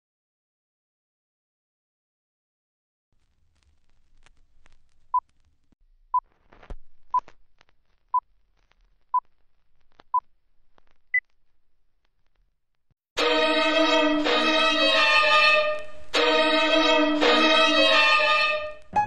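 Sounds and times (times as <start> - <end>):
bowed string music: 13.2 - 19.0.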